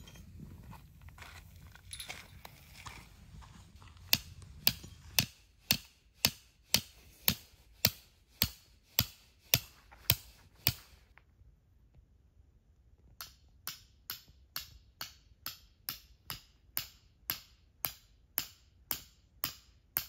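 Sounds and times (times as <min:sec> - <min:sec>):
hammer striking tent stake: 0:04.1 - 0:10.9, 0:13.2 - 0:20.0.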